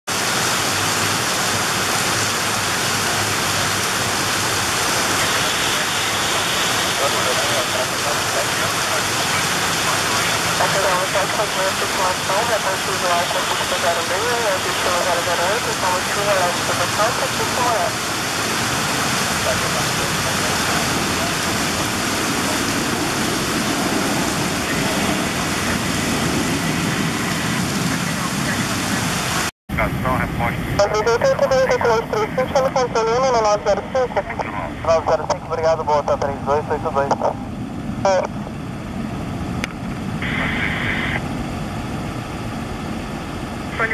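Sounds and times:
heavy rain falling: 0.1s - 30.2s
jet engines roaring at takeoff: 0.1s - 43.9s.

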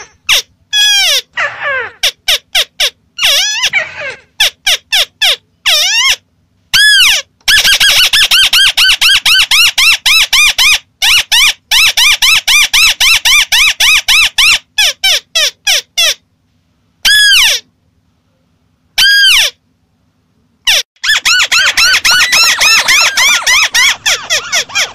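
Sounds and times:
bird chattering call: 20.7s - 24.9s.

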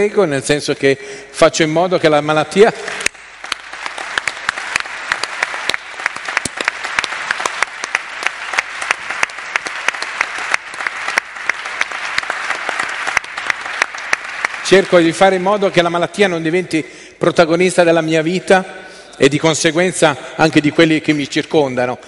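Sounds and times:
audience applauding: 2.8s - 15.8s.

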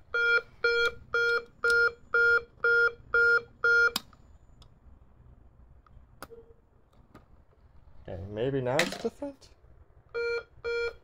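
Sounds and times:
pulsed fire alarm beeps: 0.1s - 4.0s, 10.2s - 11.0s.

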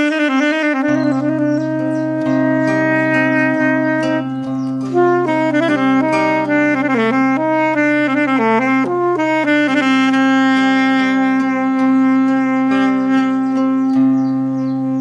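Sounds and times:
low backing tone: 0.0s - 15.0s
saxophone melody: 0.0s - 15.0s.

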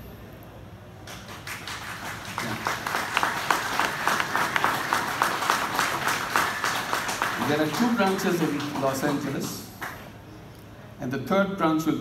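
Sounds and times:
audience applauding: 1.1s - 10.1s.

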